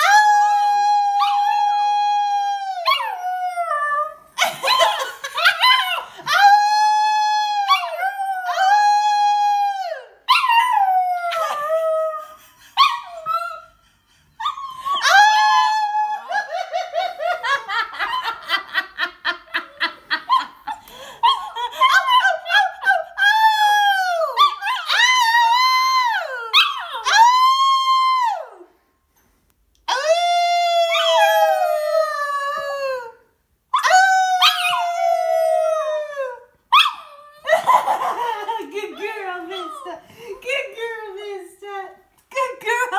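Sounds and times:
woman howling: 14.8s - 17.6s, 29.9s - 36.5s
puppy howling: 29.9s - 33.2s.

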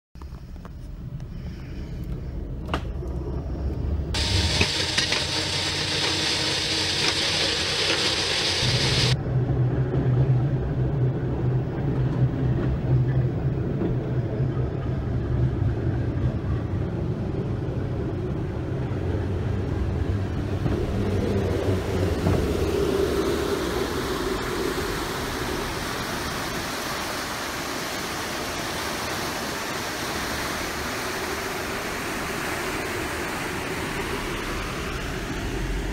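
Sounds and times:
engine and rail wheels rumbling: 0.2s - 35.9s
loud hiss: 4.2s - 9.2s
rushing river water: 21.8s - 35.9s.

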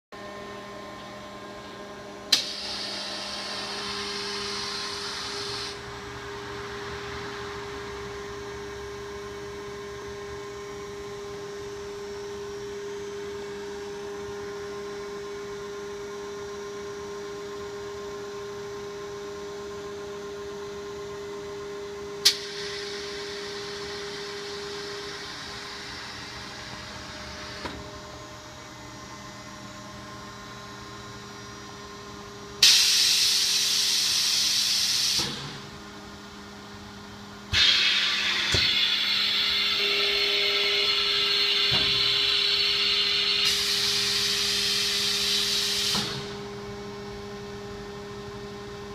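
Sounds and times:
machine humming: 0.2s - 16.1s, 22.2s - 48.9s
hiss: 2.3s - 5.8s, 22.3s - 26.4s, 32.6s - 35.5s, 37.5s - 46.4s
steady high tone: 37.6s - 43.9s.

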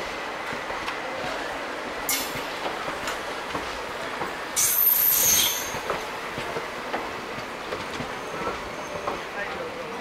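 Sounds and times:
train wheels rolling past: 0.0s - 10.0s
wheels knocking on rail joints: 2.3s - 9.7s
high-pitched wheel squeal: 4.6s - 5.8s.

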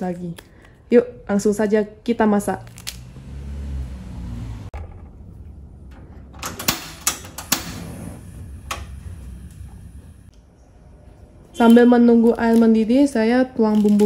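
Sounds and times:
gas flame humming: 5.9s - 10.3s
low rumble: 7.6s - 10.3s.

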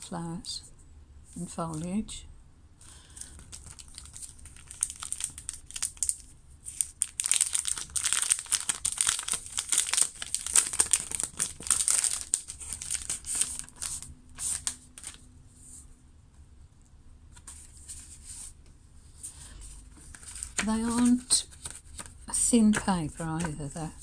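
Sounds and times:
plastic wrapping crinkling: 2.9s - 15.2s, 19.4s - 24.0s.

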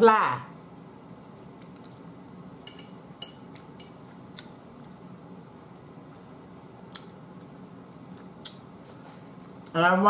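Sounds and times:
chewing soft food: 1.2s - 2.2s, 3.5s - 5.2s, 6.0s - 9.8s
fork clicking on plate: 2.6s - 4.5s.

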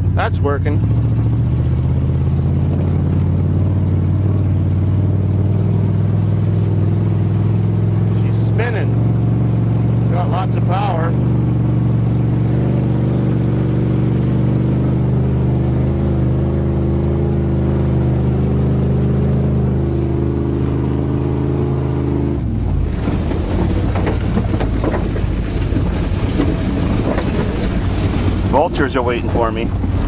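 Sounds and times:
pickup engine droning: 0.0s - 30.0s
wind buffeting: 22.4s - 30.0s.

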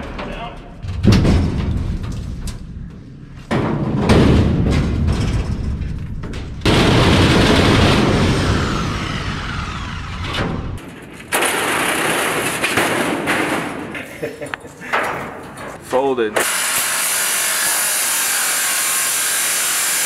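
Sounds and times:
sheet metal crashing and scraping: 0.0s - 2.7s, 3.5s - 9.6s, 10.2s - 14.2s
heavy metal bang: 0.8s - 2.4s, 3.5s - 13.9s.

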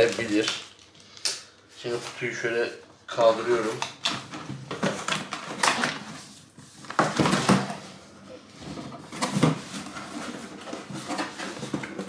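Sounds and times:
cardboard scraping and rustling: 4.3s - 12.0s.

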